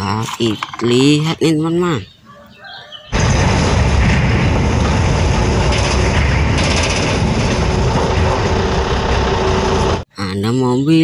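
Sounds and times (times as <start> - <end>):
truck engine rumble: 3.2 - 10.1.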